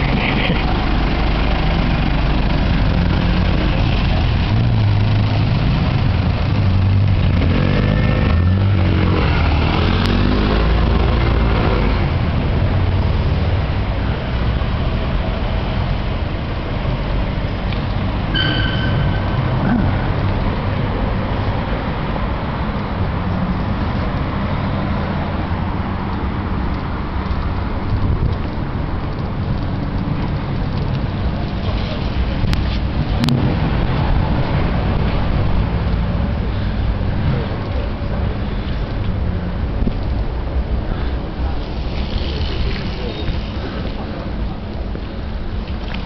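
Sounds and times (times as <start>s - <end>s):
diesel taxi driving off: 0.0s - 27.8s
traffic rumble: 0.0s - 46.0s
brief high tone: 18.3s - 19.9s.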